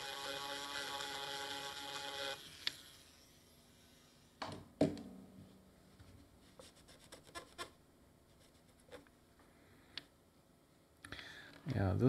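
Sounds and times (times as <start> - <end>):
faint scratching: 6.1 - 9.1.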